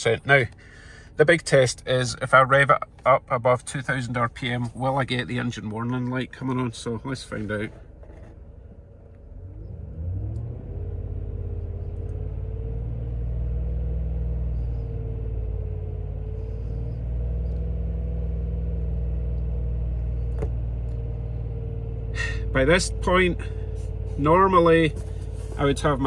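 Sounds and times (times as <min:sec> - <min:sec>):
engine revving from idle: 0:09.2 - 0:26.0.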